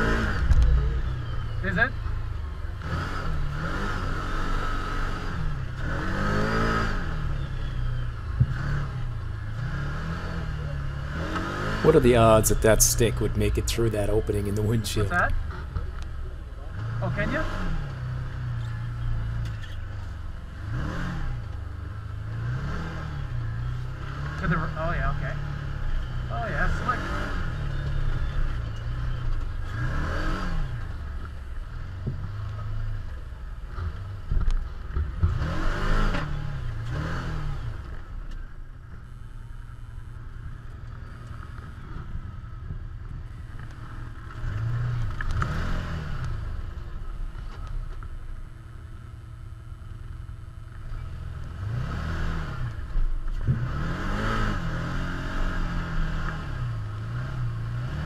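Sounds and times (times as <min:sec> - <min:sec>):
engine revving: 0:00.0 - 0:01.9, 0:02.7 - 0:07.5, 0:08.4 - 0:15.3, 0:16.7 - 0:19.5, 0:20.5 - 0:31.2, 0:35.2 - 0:38.0, 0:44.3 - 0:46.7, 0:51.1 - 0:58.0.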